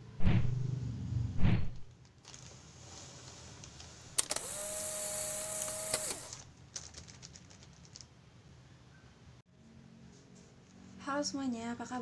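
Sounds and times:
plastic parcels rustling: 1.9s - 4.2s, 5.6s - 8.1s
motor whirring hum: 4.1s - 6.4s.

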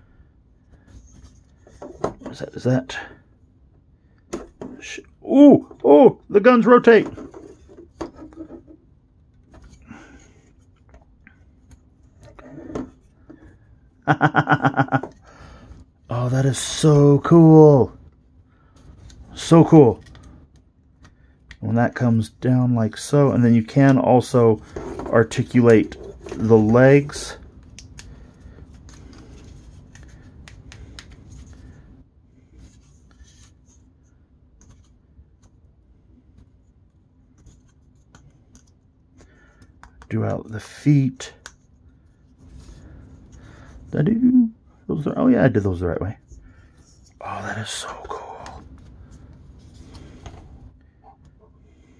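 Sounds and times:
man laughing: 14.0s - 15.2s.

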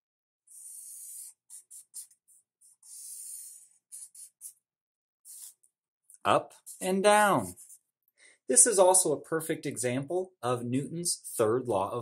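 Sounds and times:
marker drawing on paper: 0.5s - 4.6s, 5.3s - 5.7s, 6.5s - 7.9s.

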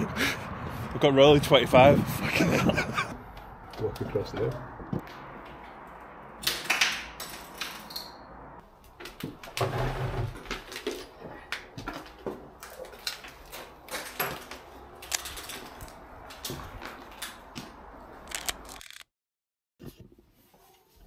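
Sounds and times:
small clicks: 18.3s - 19.1s.

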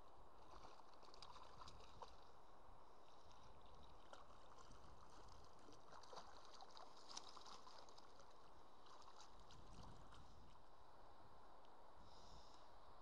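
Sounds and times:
soft water hiss: 0.0s - 13.0s
fish splashing in water: 0.4s - 2.4s, 3.1s - 10.2s.

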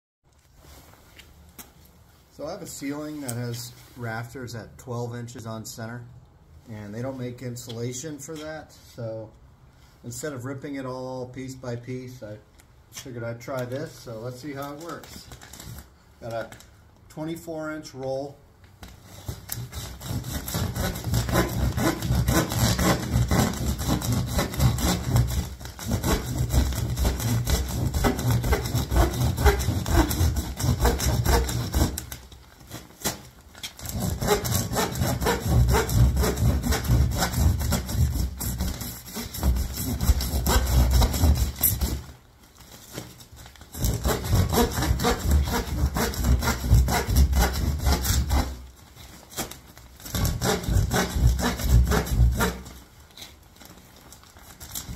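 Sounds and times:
hand saw cutting insulation: 19.2s - 32.3s, 33.8s - 42.1s, 43.7s - 48.6s, 50.1s - 52.8s.

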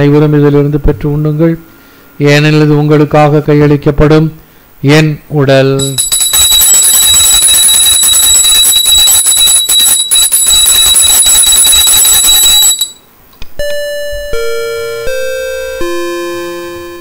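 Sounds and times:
altar bell ringing fast: 5.8s - 13.0s
keyboard playing slow held notes: 13.6s - 17.0s.

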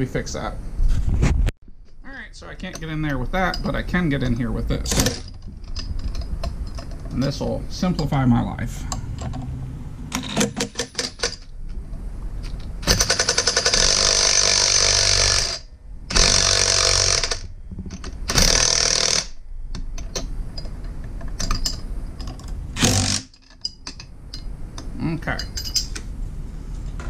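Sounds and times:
impact driver hammering: 22.8s - 23.4s.

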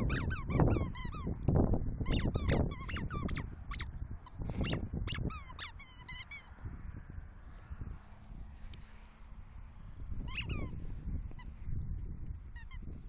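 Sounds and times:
squeaky toy squeaking: 0.0s - 1.4s, 2.0s - 6.6s, 10.2s - 10.8s, 12.5s - 12.9s.

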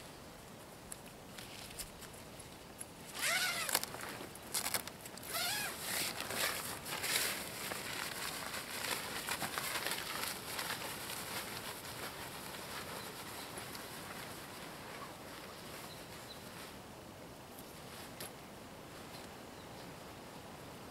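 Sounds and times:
tent fabric rustling: 3.1s - 16.8s.

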